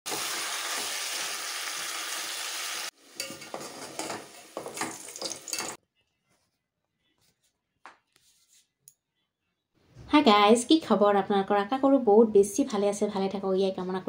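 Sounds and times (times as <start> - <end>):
chicken sizzling in oil: 0.0 - 5.8
potatoes lightly sizzling: 0.1 - 5.8
metal spoon stirring: 3.2 - 5.8.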